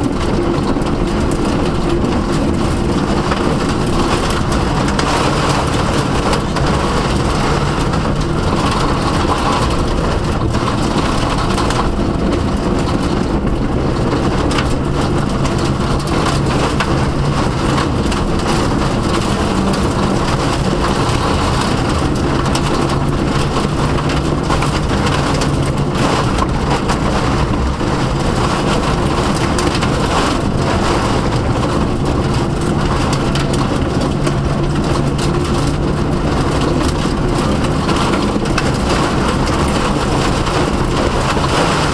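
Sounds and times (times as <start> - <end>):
car engine running hard: 0.0 - 41.9
tyre and road noise: 0.0 - 41.9.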